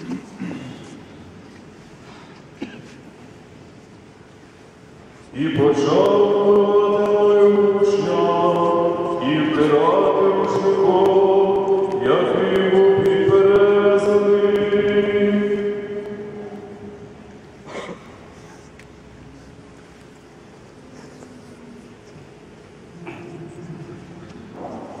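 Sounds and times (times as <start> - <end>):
voices singing liturgical chant: 5.3 - 17.1.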